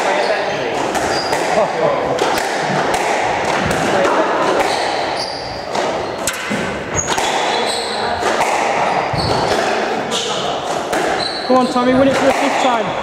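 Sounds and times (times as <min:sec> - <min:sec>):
spectators chattering: 0:00.0 - 0:13.0
shoes squeaking on wooden floor: 0:00.1 - 0:01.6, 0:03.5 - 0:13.0.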